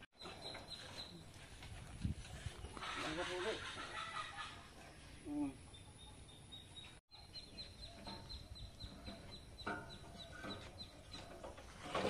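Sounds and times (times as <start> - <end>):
faint chickens clucking: 2.5 - 11.8.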